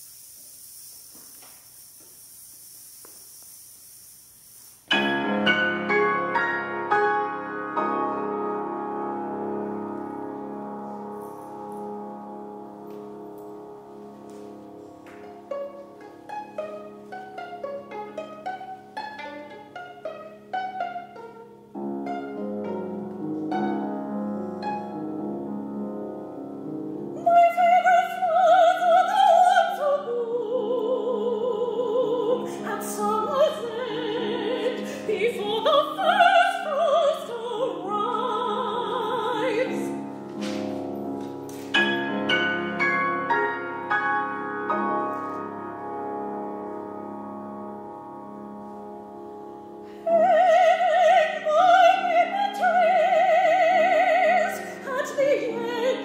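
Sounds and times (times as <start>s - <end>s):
piano: 4.8s - 56.0s
violin: 9.3s - 45.6s
soprano singing with vibrato: 27.2s - 40.0s, 50.0s - 56.0s.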